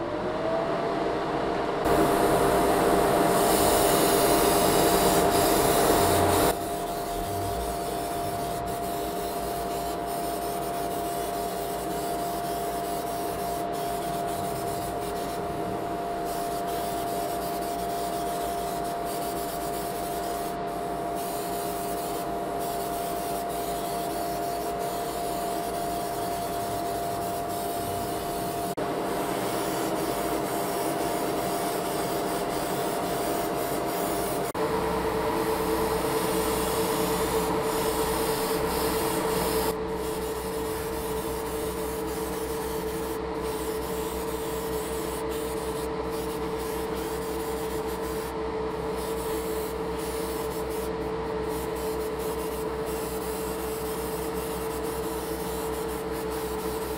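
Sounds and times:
motor humming: 0:01.8 - 0:19.0, 0:20.2 - 0:41.3
airbrush spraying hiss: 0:01.9 - 0:34.6, 0:35.4 - 0:48.3, 0:48.9 - 0:56.9.

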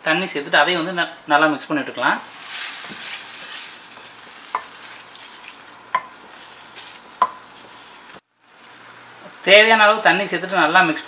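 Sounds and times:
masala sizzling in oil: 0:00.3 - 0:11.0
spatula stirring: 0:02.2 - 0:08.2.

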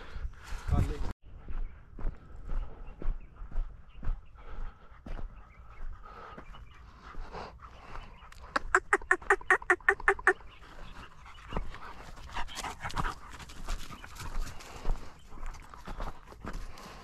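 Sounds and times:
footsteps through dry scrub: 0:00.0 - 0:09.2, 0:10.4 - 0:17.0.

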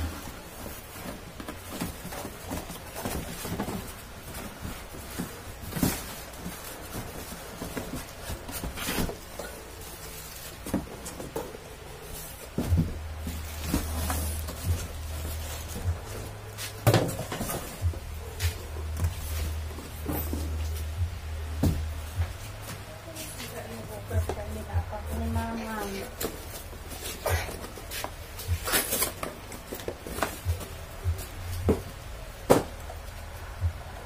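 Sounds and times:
cardboard scraping and rustling: 0:00.0 - 0:21.0, 0:25.1 - 0:31.8
low steady rumble: 0:12.7 - 0:16.6, 0:17.2 - 0:28.7, 0:30.4 - 0:34.0.

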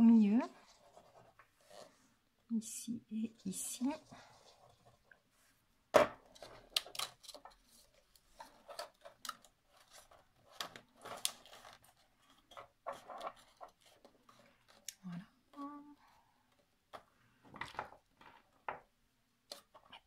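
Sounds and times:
paper rustling: 0:06.3 - 0:14.9.

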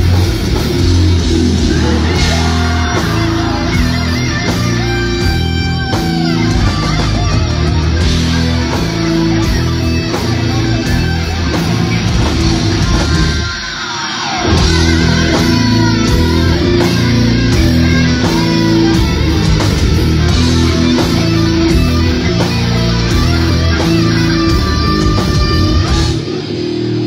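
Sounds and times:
death metal band playing: 0:00.0 - 0:27.0
falling guitar sound: 0:00.0 - 0:27.0.

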